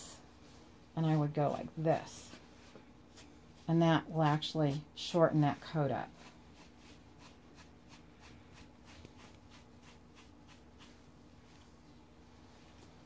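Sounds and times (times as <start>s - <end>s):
brush scratching dog fur: 1.8s - 11.1s.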